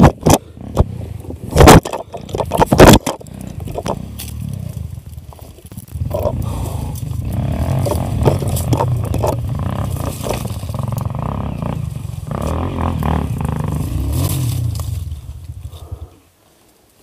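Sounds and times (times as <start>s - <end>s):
motorcycle crashing clatter: 0.0s - 11.4s
motorcycle engine rumbling: 0.0s - 16.6s.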